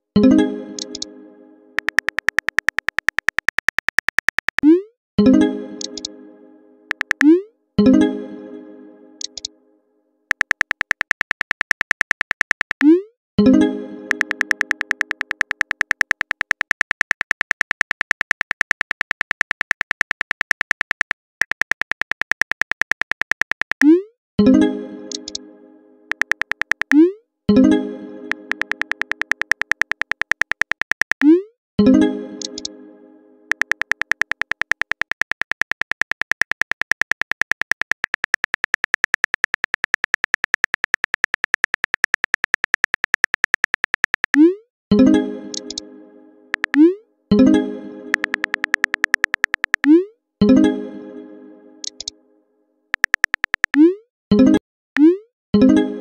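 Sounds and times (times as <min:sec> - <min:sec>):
phone keyboard typing clicks: 0:00.8 - 0:01.1, 0:01.8 - 0:04.8, 0:05.8 - 0:06.1, 0:06.9 - 0:07.4, 0:09.2 - 0:09.5, 0:10.3 - 0:13.0, 0:14.1 - 0:23.9, 0:25.1 - 0:25.4, 0:26.1 - 0:27.1, 0:28.3 - 0:31.3, 0:32.4 - 0:32.7, 0:33.5 - 0:44.5, 0:45.5 - 0:45.8, 0:46.6 - 0:46.9, 0:48.1 - 0:50.0, 0:51.8 - 0:52.1, 0:52.9 - 0:53.9.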